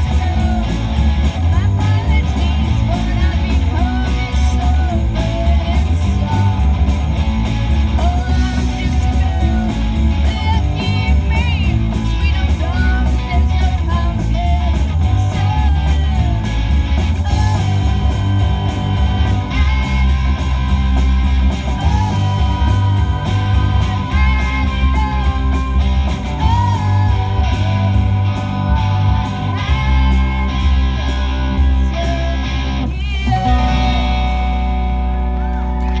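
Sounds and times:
electric guitars through amplifiers: 0.0s - 36.0s.

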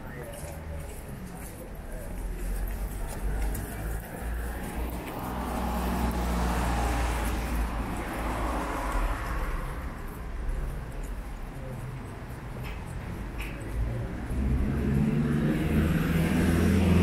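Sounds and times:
vehicle passing: 2.3s - 10.9s, 13.8s - 17.0s.

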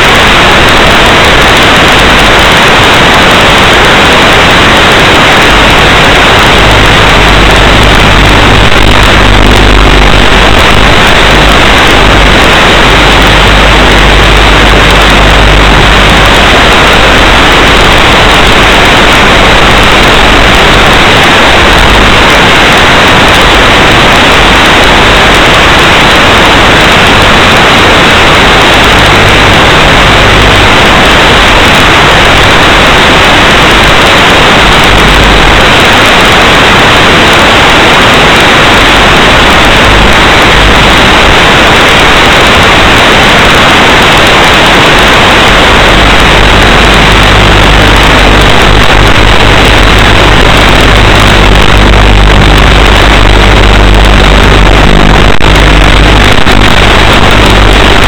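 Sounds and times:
radio static hiss: 0.0s - 58.0s.

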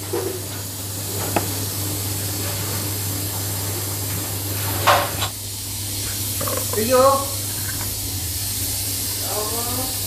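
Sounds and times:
jar knocking on mixer base: 6.4s - 7.0s.

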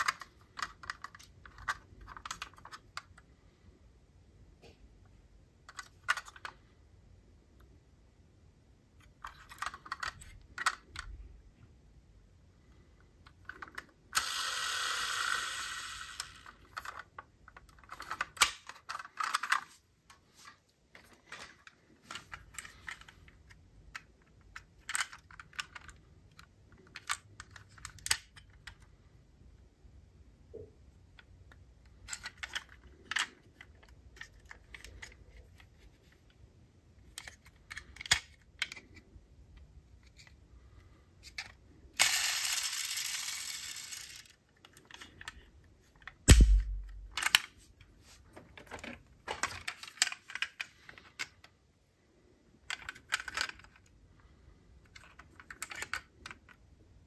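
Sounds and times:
metal toy cars clicking and tapping: 22.1s - 28.9s, 52.6s - 53.9s, 54.8s - 56.6s.

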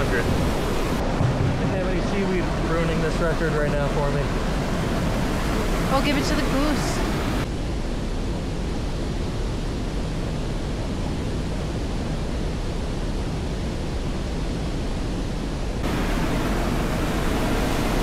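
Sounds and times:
rushing river water: 0.0s - 7.5s, 15.8s - 18.0s.

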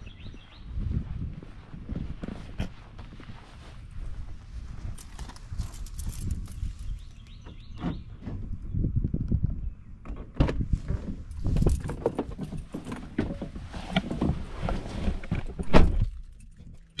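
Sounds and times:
footsteps: 0.3s - 7.2s.

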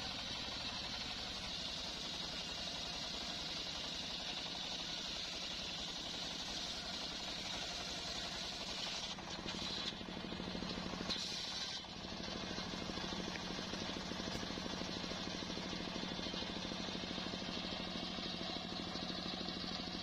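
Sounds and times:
circular saw cutting log: 0.0s - 10.1s, 10.7s - 12.4s.

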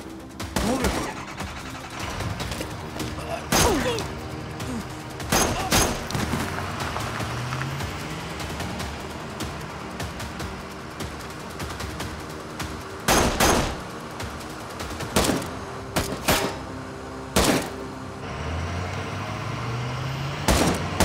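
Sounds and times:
tense background music: 0.0s - 21.0s
rifle shots with echo: 13.1s - 13.8s, 20.5s - 21.0s.

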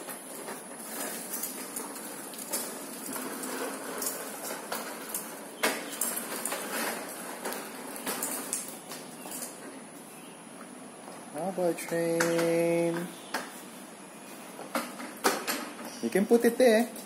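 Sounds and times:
plastic wheels rattling on tiles: 0.0s - 9.6s.

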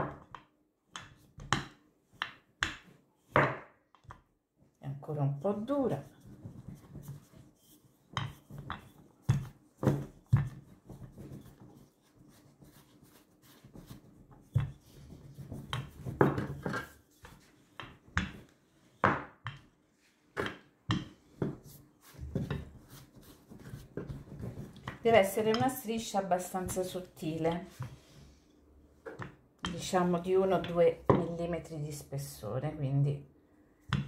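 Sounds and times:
rolling pin knocking on board: 0.0s - 4.2s, 15.5s - 17.0s, 19.0s - 19.6s
dough rubbing and pressing: 5.1s - 28.3s.

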